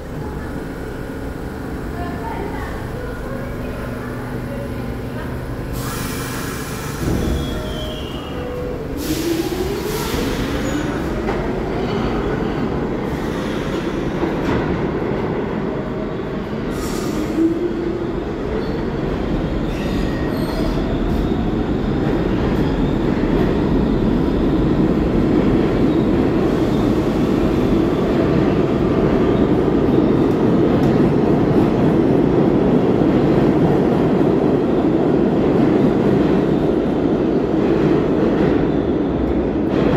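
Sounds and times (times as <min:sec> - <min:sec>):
subway train motor whine: 0:00.0 - 0:14.4
train rumble in tunnel: 0:00.0 - 0:39.9
train wheel squeal: 0:06.4 - 0:09.4, 0:19.6 - 0:21.5.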